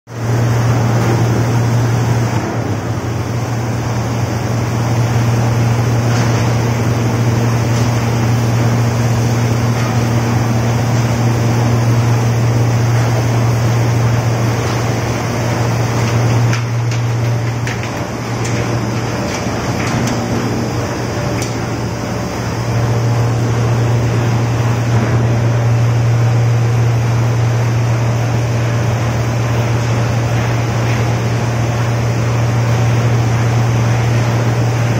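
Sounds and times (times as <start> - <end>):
motor hum: 0.1 - 34.9.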